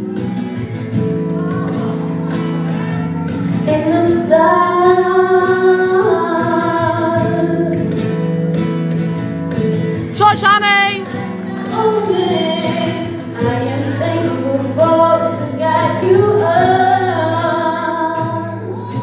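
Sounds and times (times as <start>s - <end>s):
woman singing into a microphone: 3.5s - 8.2s, 10.1s - 19.0s
backing music: 10.0s - 13.5s.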